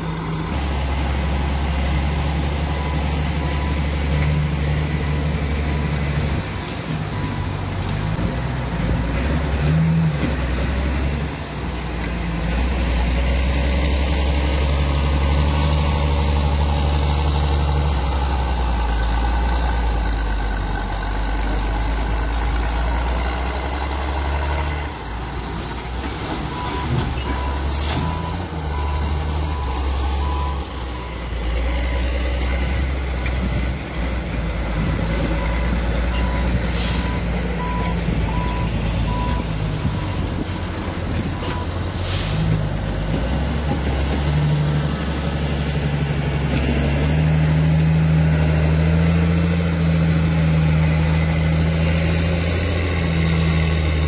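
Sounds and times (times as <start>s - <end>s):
dump truck diesel engine: 0.0s - 54.0s
air brake hisses: 36.7s - 37.1s, 42.0s - 42.6s.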